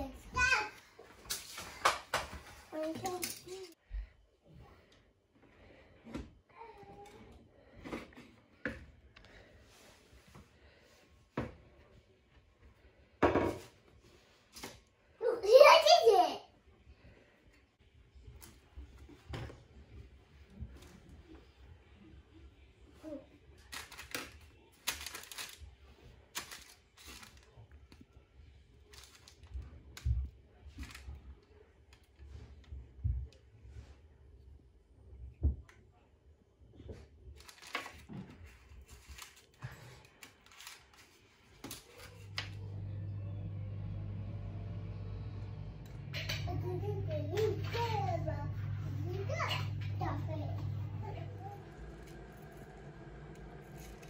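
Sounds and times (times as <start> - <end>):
parchment paper rustling: 23.6 - 27.9, 28.8 - 31.2, 37.3 - 42.6.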